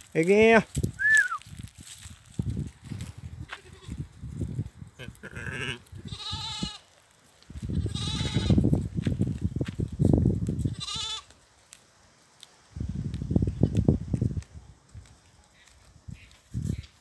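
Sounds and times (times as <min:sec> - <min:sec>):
goats bleating: 0:05.0 - 0:06.8, 0:07.7 - 0:08.6, 0:10.7 - 0:11.3.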